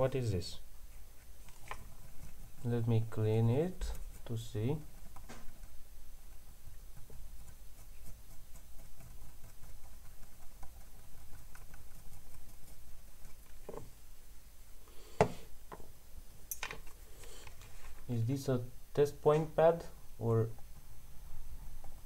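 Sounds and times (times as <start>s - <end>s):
cotton swab scratchy rubbing: 0.9s - 13.7s.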